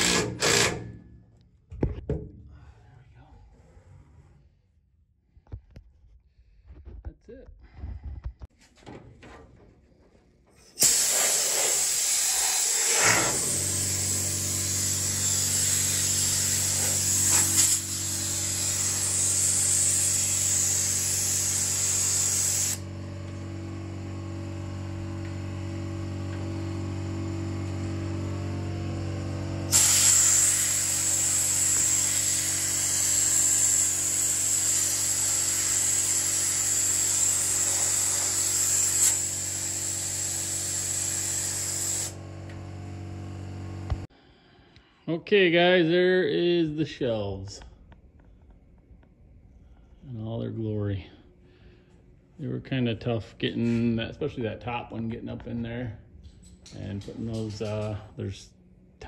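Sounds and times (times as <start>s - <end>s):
low machine hum: 42.1s - 44.6s.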